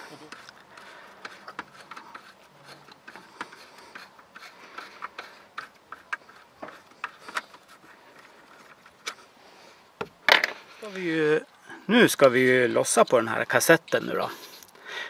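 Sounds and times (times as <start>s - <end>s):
light clicks and rubbing: 0.0s - 9.3s.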